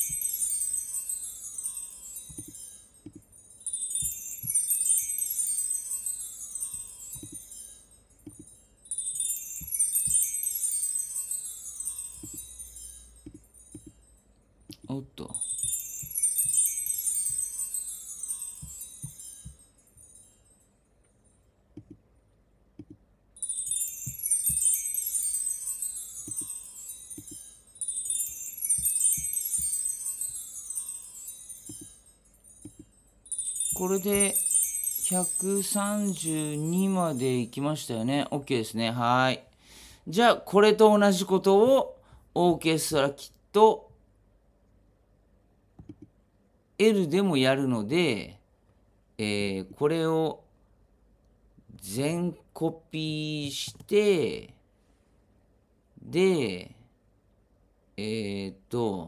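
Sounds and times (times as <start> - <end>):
bar chimes cascading: 0.0 - 21.6, 23.3 - 41.8.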